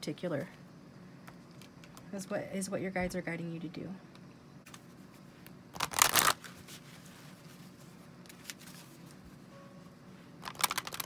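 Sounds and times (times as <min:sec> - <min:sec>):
cards rustling: 0:05.8 - 0:09.2, 0:10.4 - 0:11.0.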